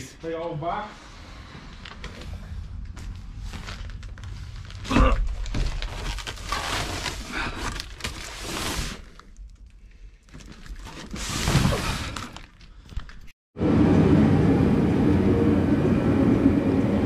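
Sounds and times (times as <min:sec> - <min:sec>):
plastic wrap rustling: 0:03.1 - 0:09.7.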